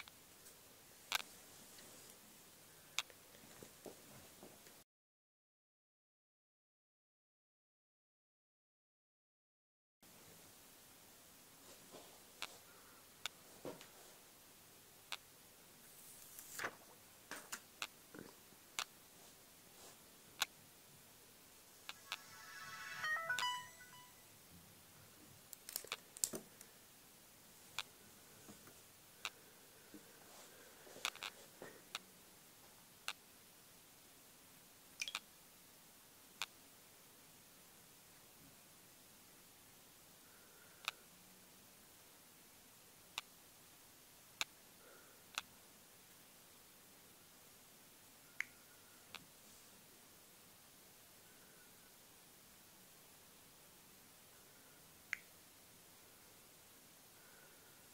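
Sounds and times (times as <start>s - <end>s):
faint steady hiss: 0.0s - 4.8s, 10.0s - 57.9s
phone startup chime melody: 21.9s - 24.3s.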